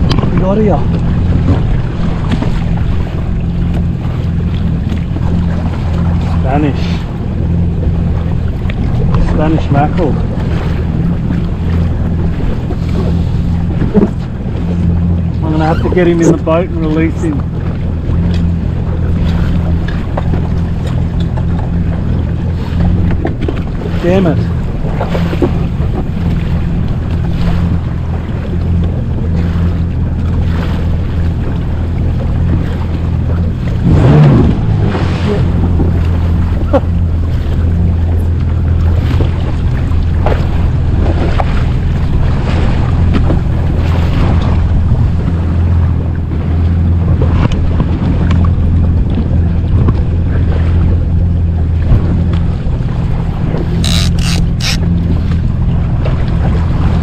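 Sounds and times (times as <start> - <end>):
jet ski engine drone: 0.0 - 57.0
water splashing along hull: 0.0 - 57.0
wind buffeting microphone: 0.0 - 57.0.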